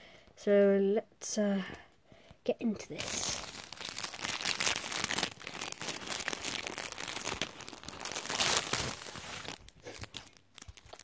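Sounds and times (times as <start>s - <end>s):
plastic wrapping crinkling: 2.9s - 11.0s.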